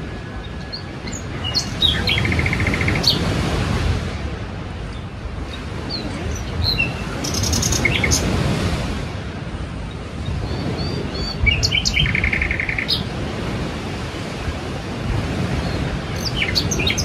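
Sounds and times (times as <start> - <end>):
sea surf washing: 0.0 - 17.0
small birds chirping: 0.4 - 3.3, 4.9 - 8.3, 9.8 - 13.1, 15.7 - 17.0.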